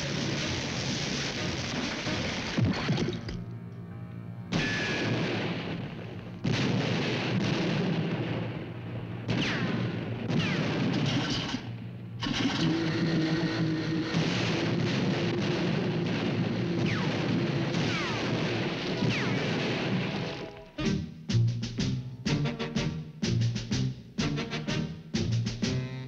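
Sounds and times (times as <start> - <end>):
cartoon gunfire and blasts: 4.5 - 20.9
falling whistles: 4.6 - 5.2.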